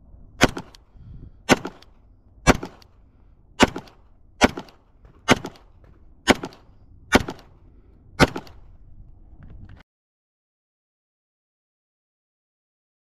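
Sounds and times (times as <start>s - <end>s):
pistol shots: 0.4s - 0.8s, 1.5s - 2.9s, 3.6s - 7.5s, 8.2s - 8.7s.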